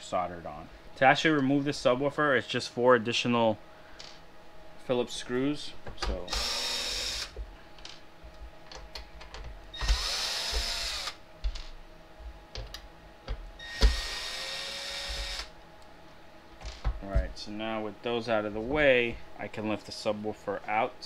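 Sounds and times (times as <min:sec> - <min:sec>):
cordless drill motor whirring: 0:06.3 - 0:07.4, 0:09.7 - 0:11.2, 0:13.6 - 0:15.5.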